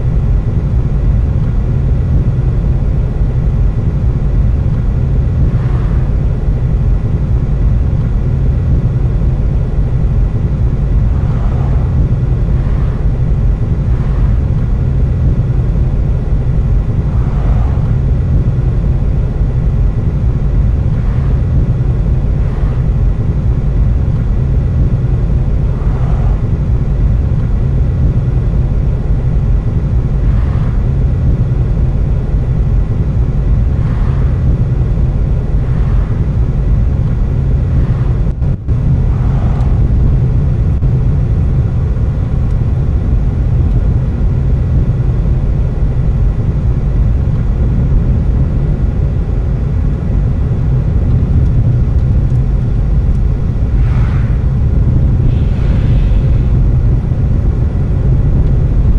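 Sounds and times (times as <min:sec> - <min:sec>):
car engine and tyres rumbling: 0:00.0 - 0:58.9
passing vehicles whooshing: 0:09.4 - 0:43.0, 0:50.8 - 0:58.9.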